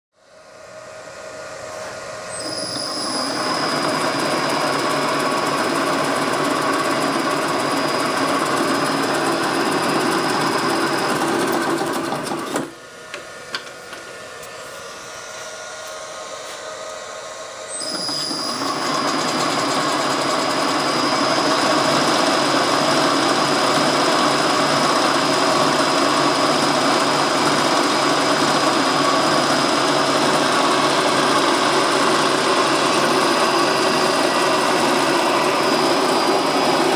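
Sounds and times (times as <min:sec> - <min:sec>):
milling machine whining: 0:00.7 - 0:36.9
rattle and squeaks: 0:17.8 - 0:18.8.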